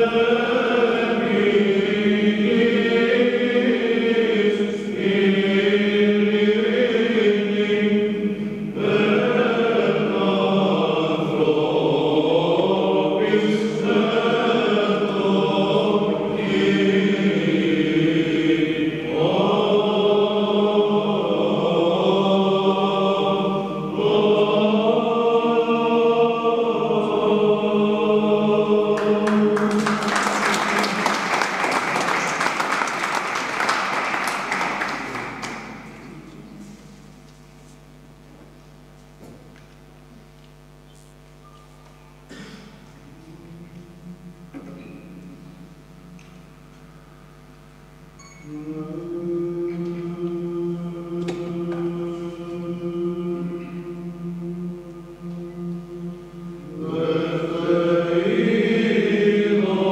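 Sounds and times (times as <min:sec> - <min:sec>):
men's choir chanting a hymn: 0:00.0 - 0:36.0, 0:48.4 - 0:59.9
applause: 0:29.0 - 0:36.0
low held drone note: 0:42.3 - 0:46.2.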